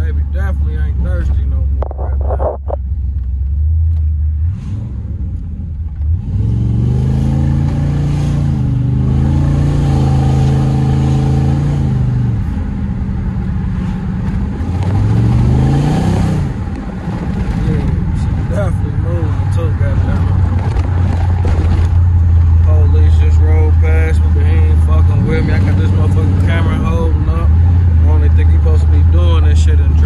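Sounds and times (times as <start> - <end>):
car engine accelerating: 0.0 - 30.0.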